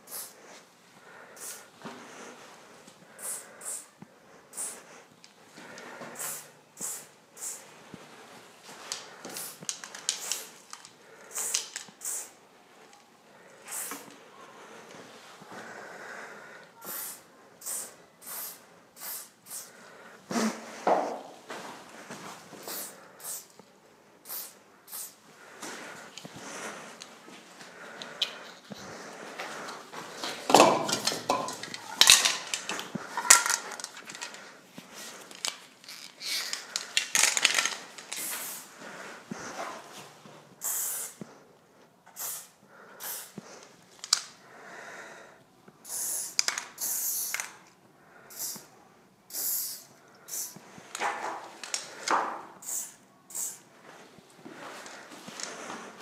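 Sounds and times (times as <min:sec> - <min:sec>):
spray can hissing bursts: 0:00.0 - 0:00.4, 0:01.4 - 0:01.6, 0:03.2 - 0:03.9, 0:04.6 - 0:04.8, 0:06.2 - 0:07.6, 0:09.4 - 0:10.5, 0:11.3 - 0:12.4, 0:13.7 - 0:14.0, 0:16.9 - 0:19.7, 0:22.6 - 0:23.5, 0:24.2 - 0:25.2, 0:38.1 - 0:38.7, 0:40.6 - 0:41.2, 0:42.2 - 0:43.4, 0:45.8 - 0:47.5, 0:48.3 - 0:48.7, 0:49.3 - 0:50.6, 0:52.6 - 0:53.6.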